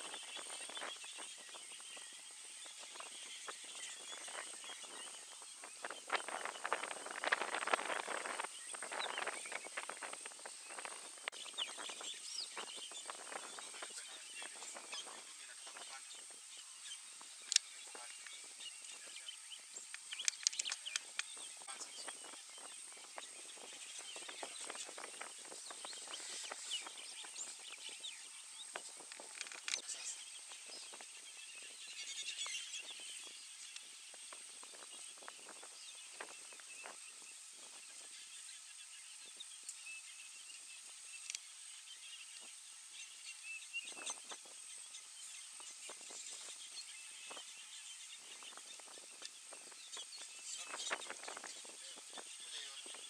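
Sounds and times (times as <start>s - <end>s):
birds chirping: 0.0s - 53.0s
steady high hiss: 0.0s - 53.0s
faint crackles and snaps: 19.8s - 21.8s, 28.7s - 30.1s, 41.2s - 41.5s.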